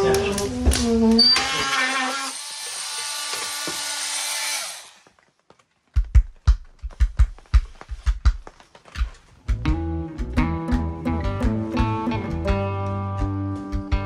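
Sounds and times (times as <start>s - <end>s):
power saw cutting wood: 1.2s - 5.1s.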